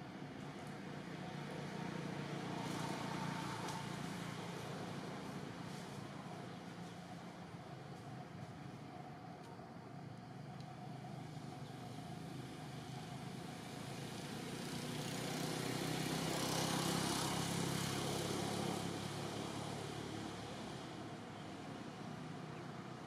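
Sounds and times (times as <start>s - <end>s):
motor vehicle passing: 1.0s - 6.0s, 14.4s - 21.2s.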